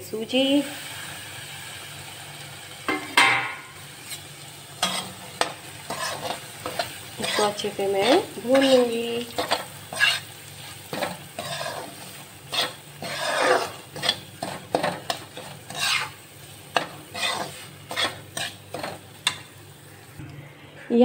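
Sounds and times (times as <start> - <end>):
spatula scraping a pan: 4.0 - 19.5.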